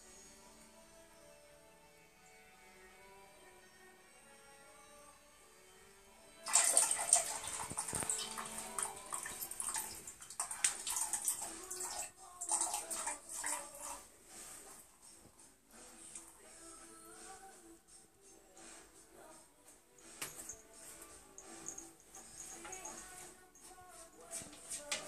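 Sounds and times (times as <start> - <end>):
cat urinating into toilet water: 6.4 - 14.2.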